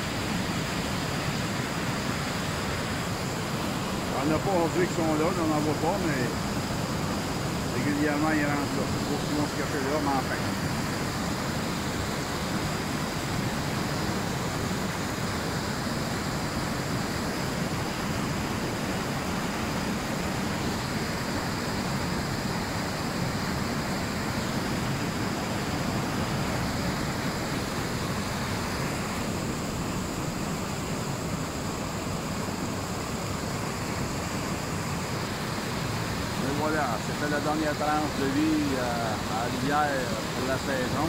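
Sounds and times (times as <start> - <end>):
river water pouring over weir: 0.0 - 41.0.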